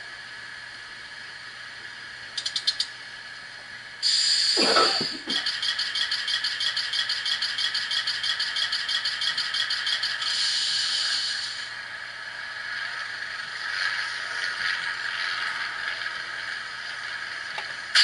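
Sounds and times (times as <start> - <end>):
locomotive equipment humming: 0.0 - 18.0
steady hiss: 0.0 - 18.0
rapid mechanical rattle: 5.3 - 18.0.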